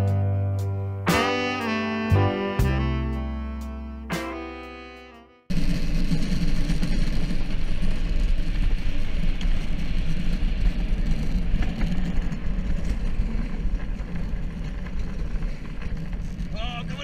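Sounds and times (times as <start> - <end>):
cart wheels rumbling on pavement: 5.5 - 17.0.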